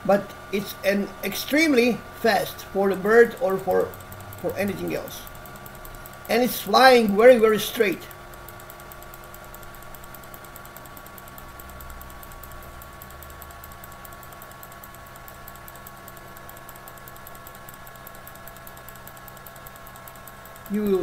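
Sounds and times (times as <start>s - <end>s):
background hum with constant tones: 0.0s - 21.0s
fast even ticking: 0.0s - 21.0s.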